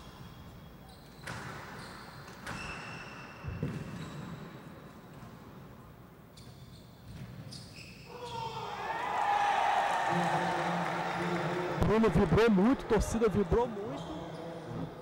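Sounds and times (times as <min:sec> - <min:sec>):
shoe squeaks on court floor: 0:00.0 - 0:05.2, 0:06.3 - 0:08.6, 0:13.9 - 0:14.8.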